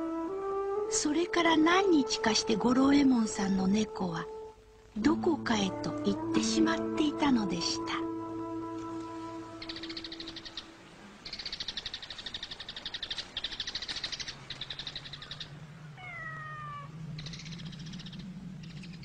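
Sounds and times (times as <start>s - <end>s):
insects trilling: 9.2s - 19.0s
cat meowing: 16.0s - 16.9s.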